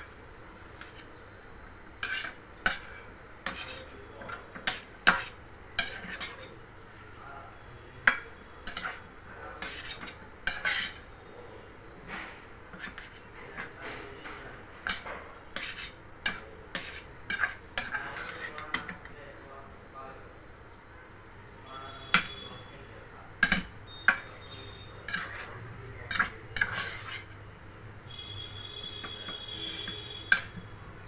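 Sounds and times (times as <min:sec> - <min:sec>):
metal spatula scraping steel pan: 0:00.8 - 0:06.6, 0:08.1 - 0:11.1, 0:12.7 - 0:13.8, 0:14.8 - 0:19.0, 0:23.4 - 0:27.4, 0:28.1 - 0:31.0.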